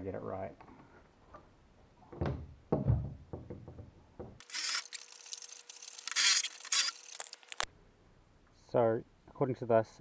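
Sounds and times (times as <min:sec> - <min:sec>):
handling knocks: 0:02.1 - 0:04.4
cordless drill boring into wood: 0:04.4 - 0:05.0, 0:06.0 - 0:07.2.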